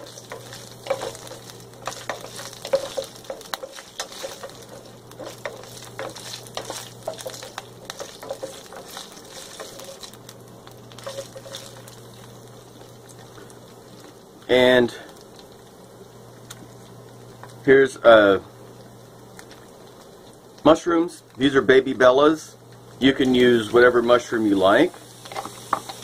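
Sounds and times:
wooden spatula scraping pan: 0:00.0 - 0:10.2, 0:11.0 - 0:12.0
green beans sizzling in oil: 0:00.0 - 0:26.0.

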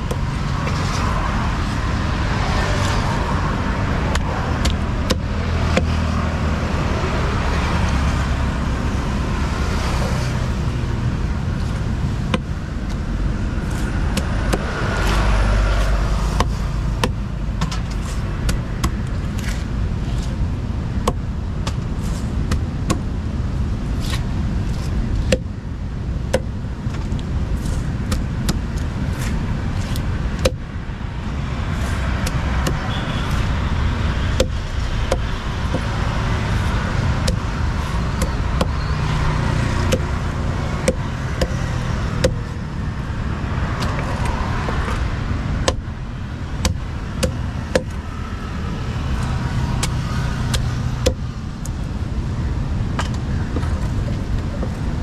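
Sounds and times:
low rumble of traffic: 0:00.0 - 0:55.0
knife chopping on wooden block: 0:38.2 - 0:38.8, 0:39.4 - 0:42.4.

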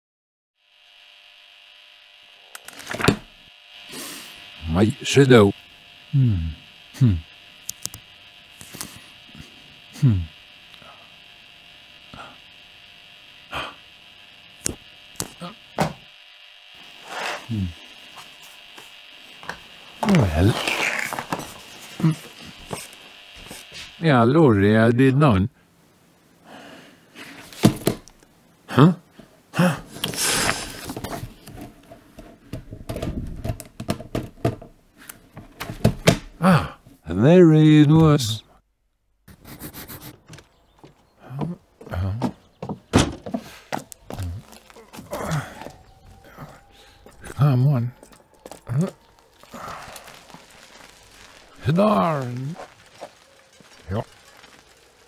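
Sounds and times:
steady hiss-hum: 0:00.6 - 0:55.0
person humming hmm: 0:06.1 - 0:07.3, 0:09.9 - 0:11.0, 0:13.5 - 0:13.8, 0:17.5 - 0:17.8, 0:36.4 - 0:36.8, 0:41.2 - 0:42.3, 0:44.2 - 0:46.9
wire spiral ticks and clicks: 0:07.6 - 0:09.5, 0:43.8 - 0:55.0.

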